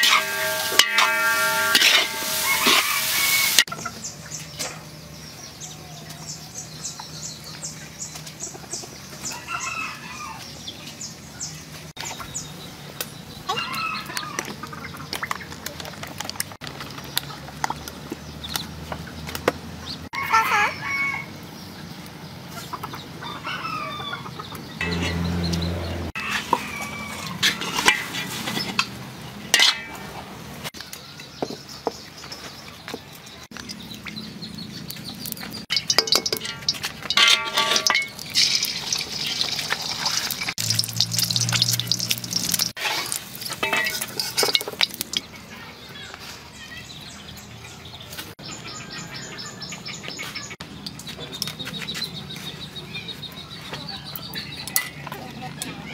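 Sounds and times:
metal spatula scraping a wok: 0.0 - 3.7, 26.2 - 30.2, 35.7 - 45.2
oil sizzling: 0.0 - 3.7, 35.2 - 45.4
chickens clucking and crowing: 0.0 - 15.7, 20.0 - 31.4, 42.7 - 55.9.

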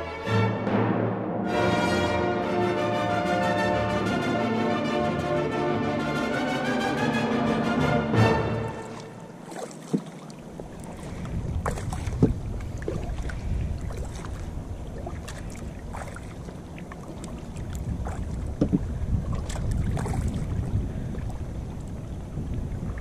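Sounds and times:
water against plastic hull: 8.5 - 23.0
wind rumble on microphone: 10.4 - 23.0.

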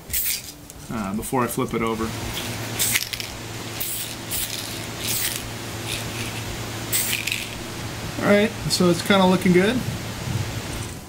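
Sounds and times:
spray can hissing: 0.0 - 0.6, 2.2 - 7.8
steady low hum: 0.0 - 11.0.

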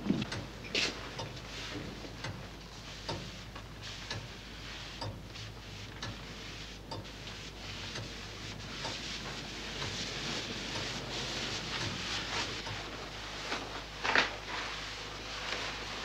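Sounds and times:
soft shuffling footsteps: 0.0 - 16.0
grandfather clock ticking: 2.2 - 4.4, 5.0 - 5.3.

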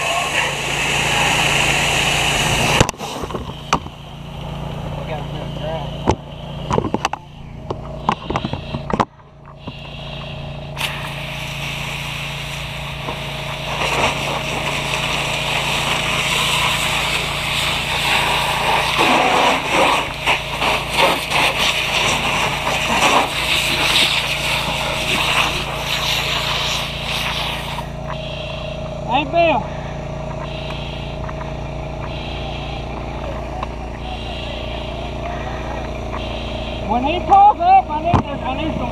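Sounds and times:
hose spraying water hiss: 0.0 - 7.0, 7.8 - 37.5
engine hum: 0.0 - 38.9
water spattering on hot metal: 10.8 - 27.9.

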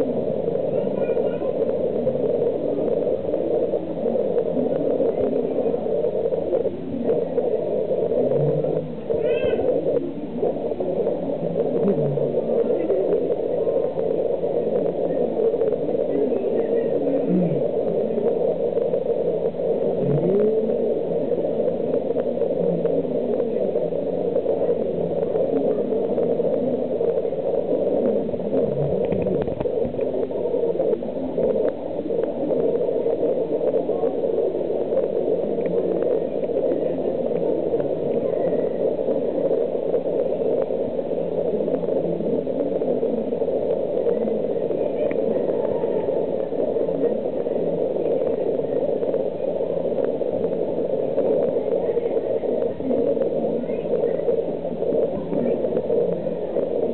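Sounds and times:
aquarium water circulation hum: 0.0 - 56.9
faint voices: 0.0 - 56.9.

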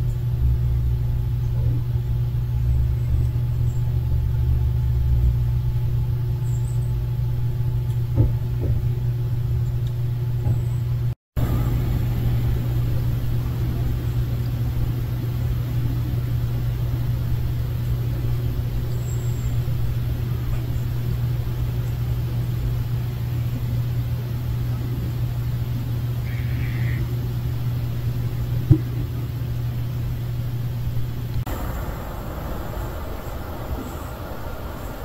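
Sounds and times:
engine rumble: 0.0 - 35.0.

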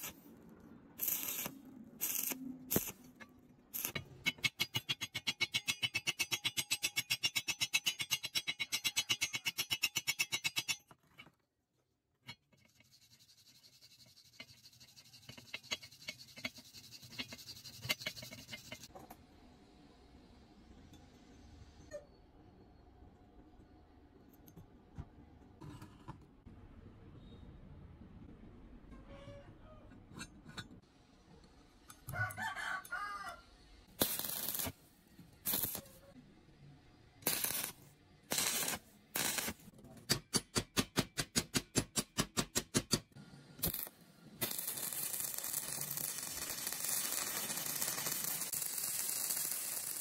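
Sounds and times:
welding arc crackling hiss: 0.0 - 0.2, 1.0 - 3.0, 3.8 - 4.0, 34.0 - 34.8, 35.4 - 36.0, 37.2 - 39.6, 43.6 - 50.0
wire brush scratching steel: 1.0 - 3.1, 3.7 - 10.9, 12.3 - 18.9, 34.0 - 34.8, 35.4 - 36.1, 37.2 - 39.6, 43.6 - 50.0
rooster crowing: 32.1 - 33.4.

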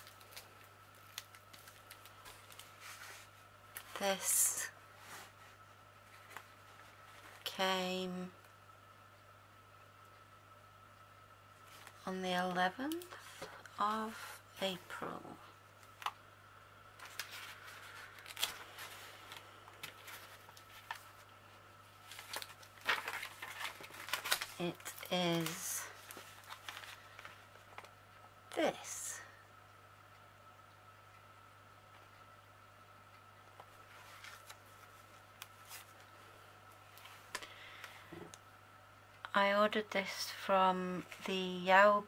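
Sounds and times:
paper notebook rustling: 0.0 - 4.0, 17.0 - 21.3, 22.0 - 27.9, 33.7 - 36.1
steady low hum: 0.0 - 42.0.

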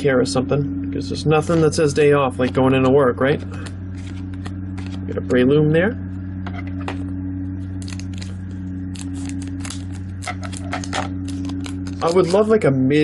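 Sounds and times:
low steady hum: 0.0 - 13.0
foil wrapper crinkling and tearing: 3.6 - 5.0, 7.7 - 12.5.

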